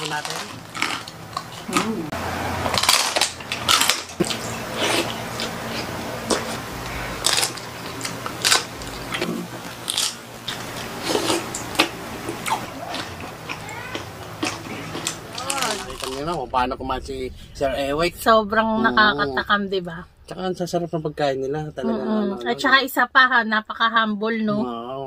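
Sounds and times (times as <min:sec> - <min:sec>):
chewing: 0:00.0 - 0:16.4
crunchy bites into crispy pork: 0:07.2 - 0:11.9.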